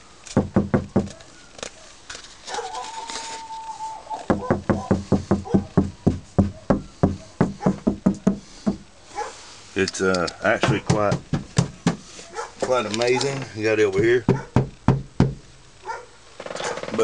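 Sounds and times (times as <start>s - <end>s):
knuckles knocking on metal panel: 0.4s - 1.1s, 4.3s - 8.8s, 10.6s - 12.0s, 13.9s - 15.5s.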